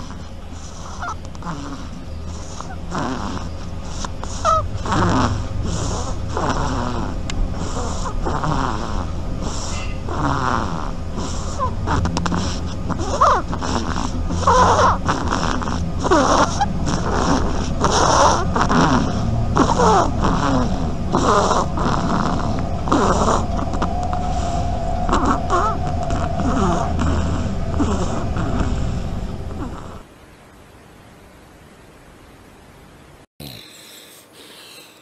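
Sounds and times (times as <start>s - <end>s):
duckling snoring: 0.0s - 30.1s, 33.4s - 35.0s.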